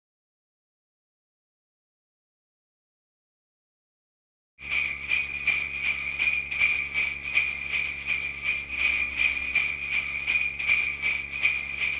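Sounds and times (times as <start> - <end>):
sleigh bells jingling: 4.6 - 11.9.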